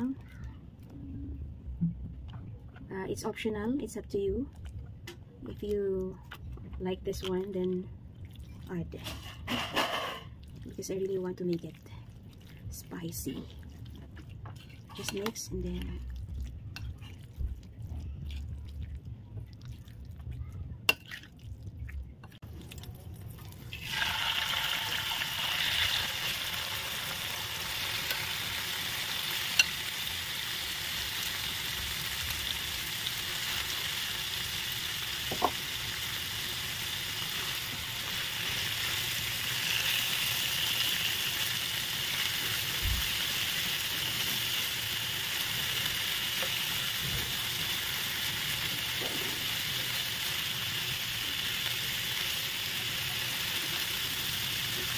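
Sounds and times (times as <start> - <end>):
meat sizzling in a frying pan: 23.7 - 54.9.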